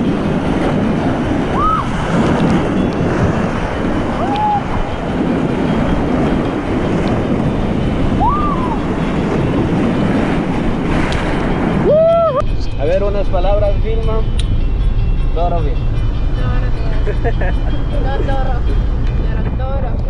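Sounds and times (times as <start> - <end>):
rapids rushing and churning: 0.0 - 20.0
whistle-like rising tones: 1.5 - 2.0, 4.2 - 5.0, 8.1 - 9.1.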